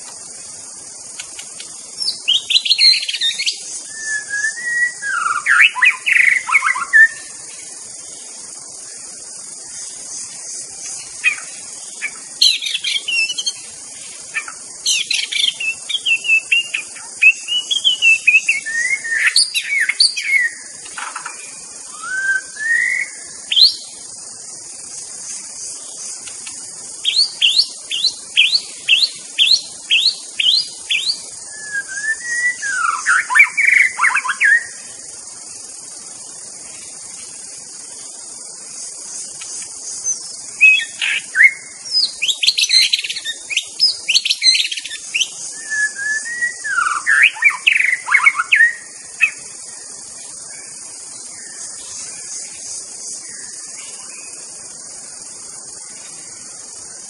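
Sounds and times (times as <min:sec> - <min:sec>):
steady high-pitched hiss: 0:00.0 - 0:57.0
bird singing whistles: 0:02.0 - 0:07.3, 0:12.1 - 0:13.6, 0:14.4 - 0:20.6, 0:21.9 - 0:23.9, 0:27.0 - 0:34.8, 0:40.0 - 0:49.4.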